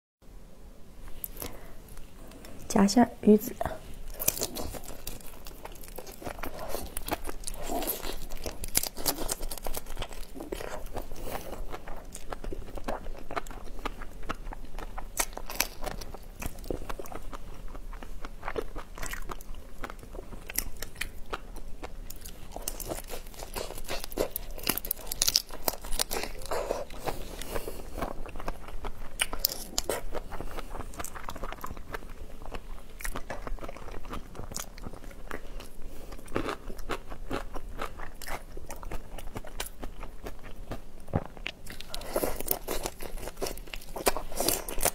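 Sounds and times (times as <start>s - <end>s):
wet chewing: 4.0s - 44.9s
prawn shells cracking: 22.6s - 26.5s.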